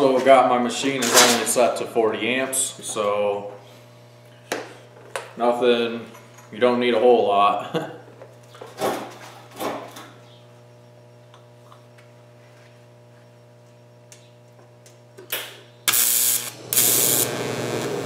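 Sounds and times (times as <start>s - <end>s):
welder humming: 10.7s - 18.0s
welding arc hissing: 15.9s - 18.0s.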